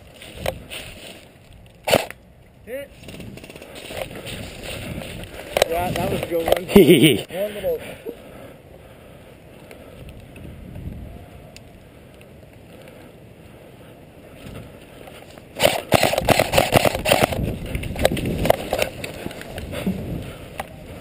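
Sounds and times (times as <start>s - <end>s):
rustling of dry brush: 0.0s - 1.6s, 2.9s - 6.4s
airsoft rifle firing bursts: 15.6s - 17.4s.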